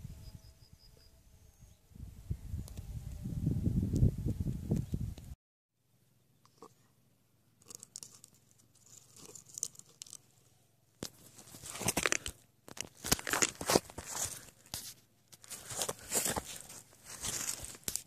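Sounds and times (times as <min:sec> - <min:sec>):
camera handling rustling: 0:11.0 - 0:18.0.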